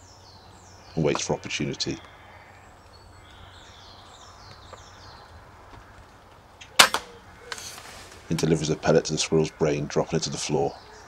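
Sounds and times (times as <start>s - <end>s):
silenced air rifle shot: 6.8s - 7.2s.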